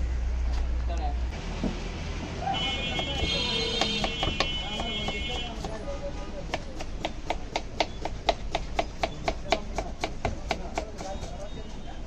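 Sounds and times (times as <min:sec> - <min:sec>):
knife chopping on cutting board: 0:02.9 - 0:05.8, 0:06.5 - 0:11.4.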